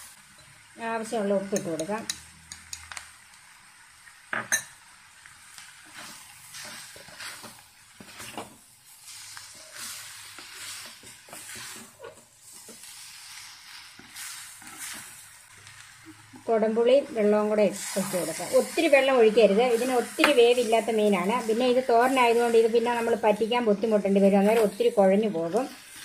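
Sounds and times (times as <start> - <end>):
soft sizzle: 0.0 - 26.0
wooden spatula scraping clay pot: 9.1 - 15.2.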